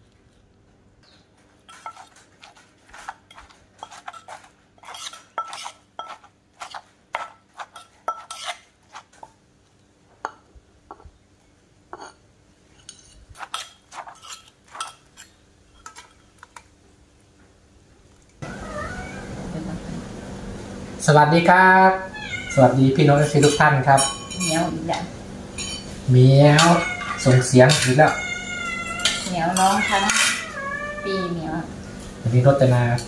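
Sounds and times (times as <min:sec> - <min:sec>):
metal spoon clinking in clay mortar: 0:01.7 - 0:08.6, 0:12.8 - 0:16.5, 0:23.2 - 0:24.7, 0:25.6 - 0:25.9.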